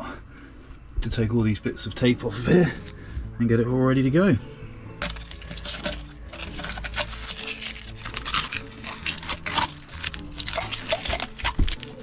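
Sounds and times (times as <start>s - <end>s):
tape peeling and crinkling: 5.0s - 12.0s.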